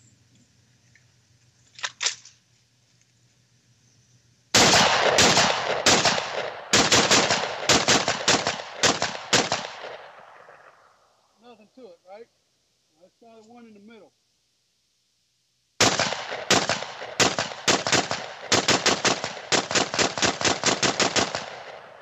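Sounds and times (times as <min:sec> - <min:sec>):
semi-automatic gunshots: 0:04.6 - 0:11.0, 0:15.8 - 0:22.0.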